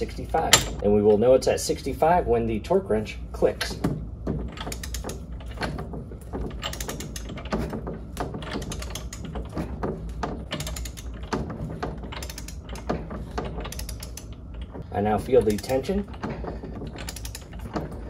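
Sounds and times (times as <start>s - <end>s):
torque wrench ratchet clicking: 13.7s - 14.2s, 17.0s - 17.6s.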